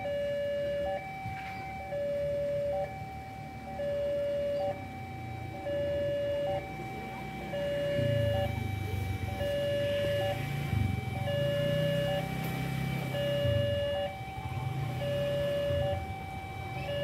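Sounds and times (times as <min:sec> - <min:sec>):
diesel locomotive rumble: 0:00.0 - 0:17.0
level crossing two-tone alarm: 0:00.0 - 0:17.0.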